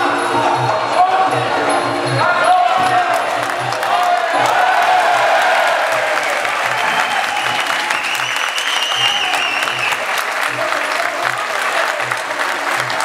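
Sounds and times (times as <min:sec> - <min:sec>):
crowd applauding and cheering: 0:02.7 - 0:13.0
long high whistle: 0:06.8 - 0:10.0.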